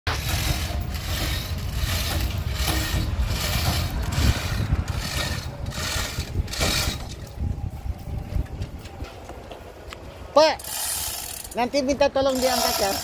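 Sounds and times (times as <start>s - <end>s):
steady low rumble: 0.1s - 10.3s.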